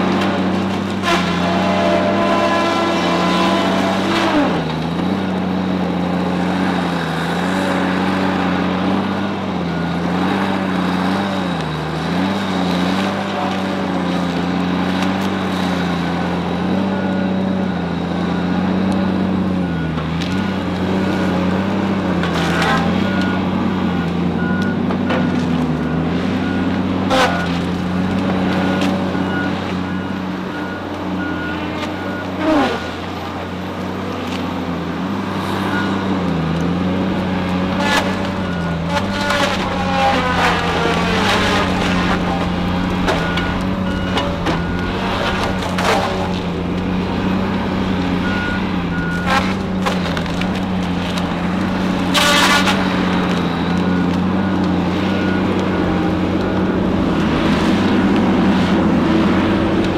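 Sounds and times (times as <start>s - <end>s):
diesel engine and disc saw: 0.0s - 59.9s
beeping alarm: 28.5s - 32.6s, 35.6s - 36.1s, 41.5s - 46.6s, 48.1s - 50.2s, 53.2s - 56.3s.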